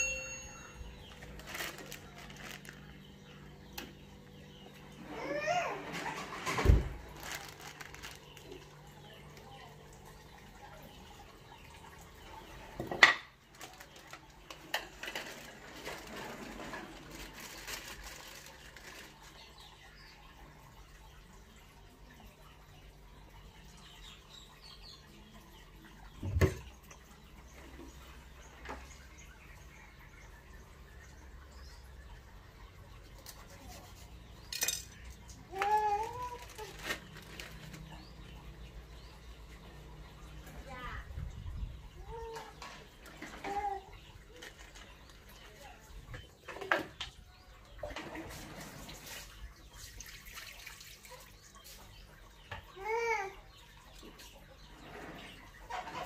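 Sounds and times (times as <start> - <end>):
plastic bag crinkling: 1.1 - 3.0, 7.0 - 8.9, 13.5 - 19.4.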